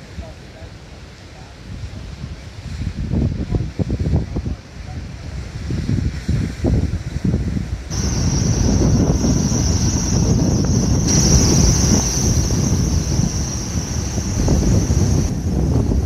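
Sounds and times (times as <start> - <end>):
wind buffeting microphone: 1.4 - 16.0
high-pitched cooling unit whine: 7.8 - 16.0.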